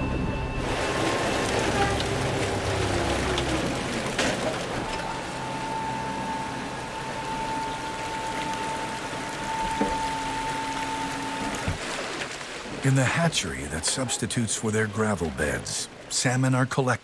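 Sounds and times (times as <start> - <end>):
low hum: 0.0 - 11.9
water splashing in metal bin: 0.6 - 14.2.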